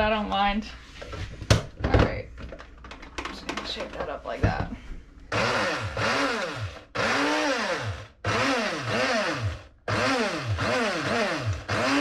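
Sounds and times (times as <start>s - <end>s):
blender motor pulsing: 5.3s - 12.0s.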